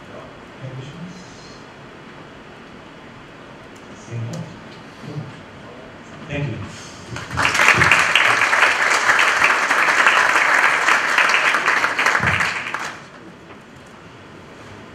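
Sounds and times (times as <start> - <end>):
audience applauding: 7.1 - 13.3.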